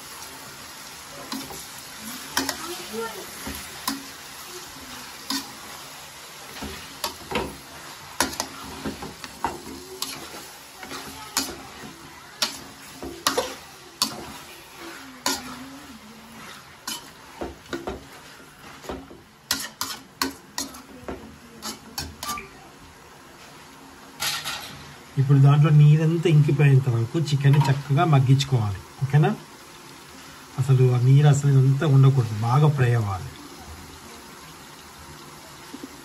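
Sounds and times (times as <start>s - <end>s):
food sizzling: 0.0s - 36.0s
metal spoon scraping a pan: 1.2s - 4.3s, 5.0s - 5.8s, 6.5s - 21.0s, 21.6s - 22.5s, 24.2s - 24.9s.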